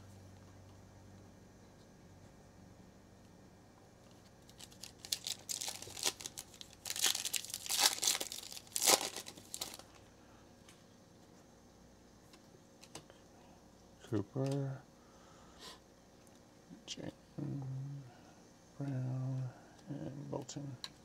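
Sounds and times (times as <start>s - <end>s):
foil pack tearing and crinkling: 4.4s - 10.0s.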